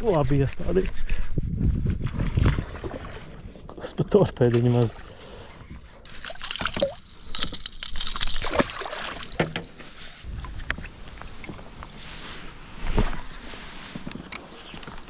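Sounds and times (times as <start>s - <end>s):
water splashing around a boat: 2.1s - 14.0s
knocks and rustles of handling: 6.1s - 11.8s.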